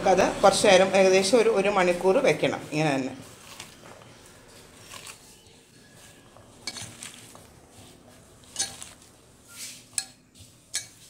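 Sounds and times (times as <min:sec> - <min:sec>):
hand rubbing wet food: 0:01.8 - 0:11.0
sharp clinks against a pot: 0:08.6 - 0:08.9, 0:10.0 - 0:11.0.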